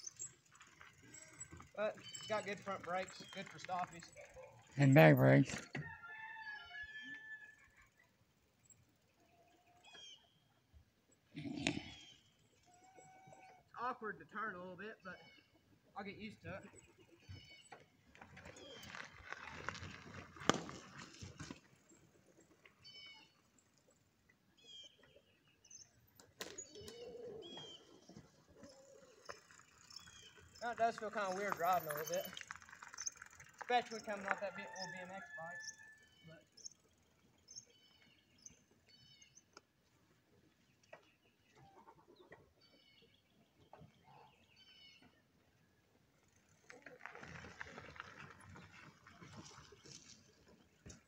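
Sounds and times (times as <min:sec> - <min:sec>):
faint chickens calling: 0:26.7 - 0:29.4.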